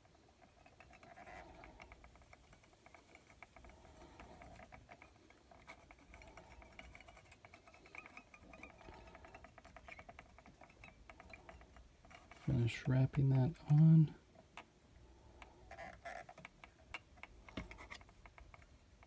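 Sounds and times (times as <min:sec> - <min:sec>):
thread winding scratchy ticking: 0:00.0 - 0:19.0.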